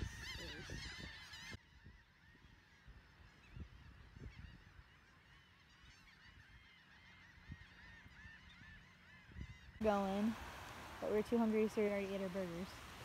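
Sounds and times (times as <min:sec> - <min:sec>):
flock of gulls calling: 0:00.0 - 0:10.3.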